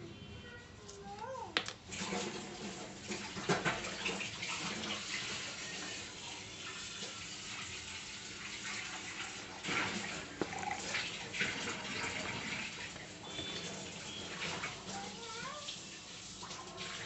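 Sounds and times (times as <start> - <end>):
milk pouring into blender jar: 9.6 - 14.5.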